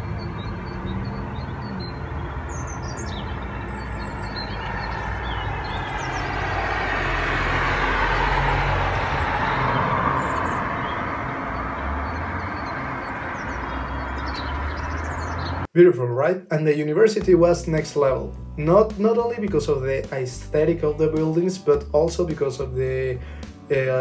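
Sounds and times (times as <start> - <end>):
car passing: 0.0 - 15.7
small birds chirping: 0.0 - 15.7.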